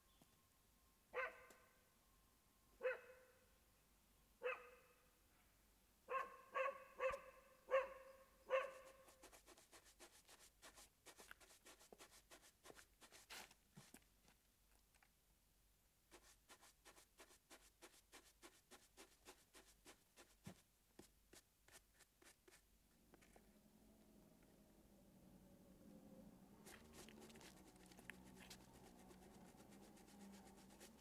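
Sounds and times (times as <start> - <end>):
dog barking: 1.2 - 1.6, 2.8 - 3.2, 4.4 - 5.0, 6.1 - 9.0.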